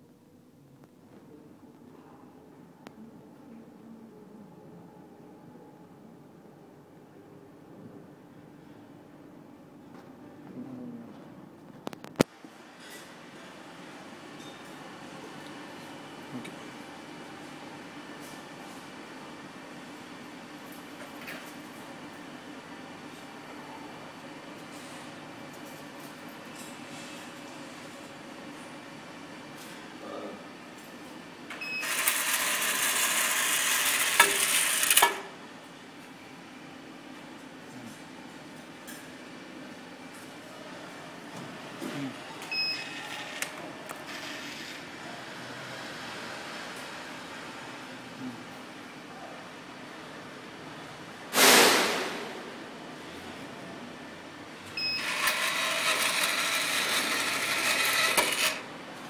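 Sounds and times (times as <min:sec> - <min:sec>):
envelope dispenser motor hissing: 0:31.8 - 0:35.2, 0:43.0 - 0:44.9, 0:55.0 - 0:58.6
sudden loud noise burst: 0:51.3 - 0:52.6.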